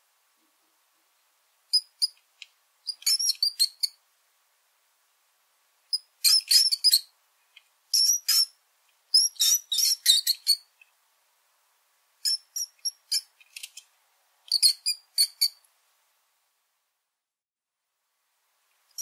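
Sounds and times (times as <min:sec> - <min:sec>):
mouse squeaking: 0:01.7 - 0:02.2, 0:02.9 - 0:04.0, 0:05.9 - 0:07.1, 0:07.9 - 0:10.8, 0:12.2 - 0:13.8, 0:14.5 - 0:15.6.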